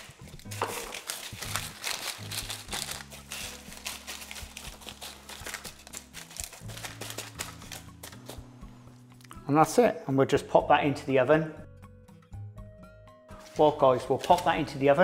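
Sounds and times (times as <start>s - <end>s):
paper crinkling: 0.0s - 8.4s, 13.4s - 14.8s
background music: 0.0s - 15.0s.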